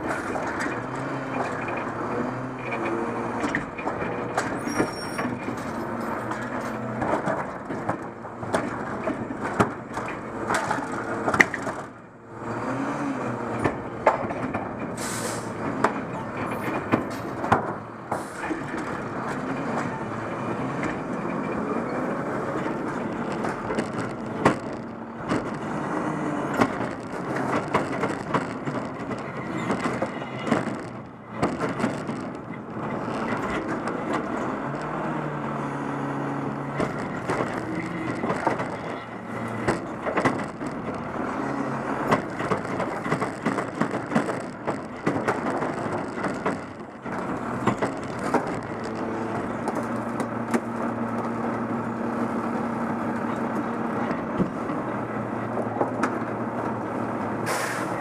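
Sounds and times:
clanks of arm and cart: 0.0 - 12.0, 13.6 - 35.0, 36.7 - 51.7, 52.5 - 58.0
diesel engine under load: 0.0 - 58.0
short hydraulic hiss: 15.0 - 15.5, 57.4 - 58.0.

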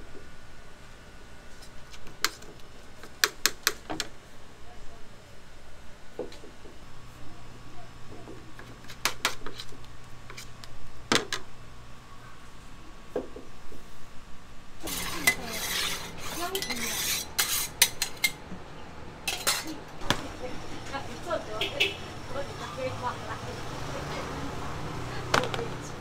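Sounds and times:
spatula scraping griddle: 14.8 - 18.4, 19.3 - 19.7
griddle hissing: 14.8 - 18.5.

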